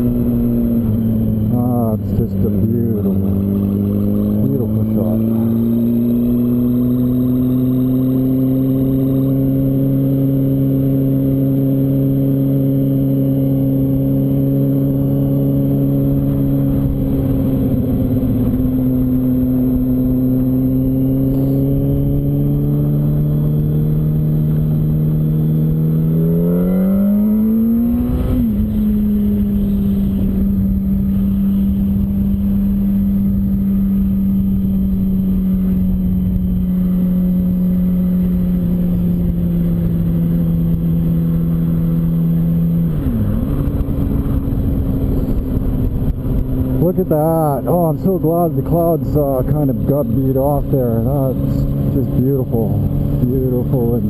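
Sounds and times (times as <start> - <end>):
motorcycle engine revving: 0.0 - 54.0
wind rush: 42.9 - 46.8.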